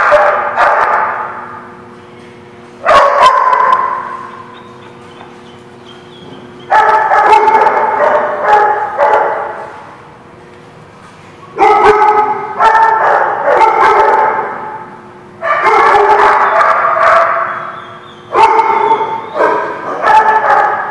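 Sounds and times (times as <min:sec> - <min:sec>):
dog barking in high yaps: 0:00.0 - 0:01.3, 0:02.8 - 0:04.6, 0:06.6 - 0:09.6, 0:11.6 - 0:14.7, 0:15.4 - 0:20.9.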